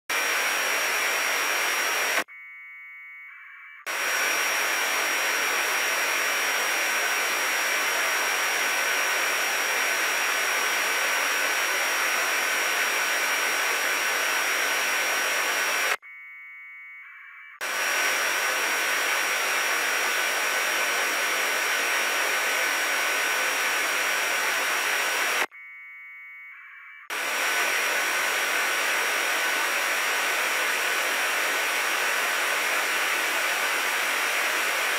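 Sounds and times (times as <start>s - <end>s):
radio receiver hiss: 0.1s - 2.3s, 3.9s - 16.0s, 17.6s - 25.5s, 27.1s - 34.9s
warbling data tones: 2.2s - 4.8s.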